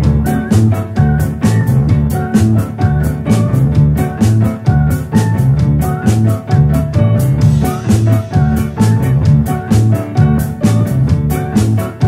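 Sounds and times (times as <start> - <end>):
rock band music: 0.0 - 12.0.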